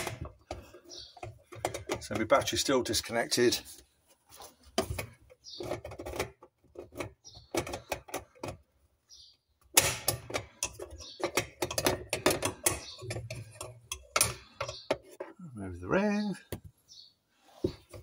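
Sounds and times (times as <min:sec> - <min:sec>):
tool clicking and knocking on metal: 0:00.0 - 0:03.2, 0:04.8 - 0:08.7, 0:09.6 - 0:15.4.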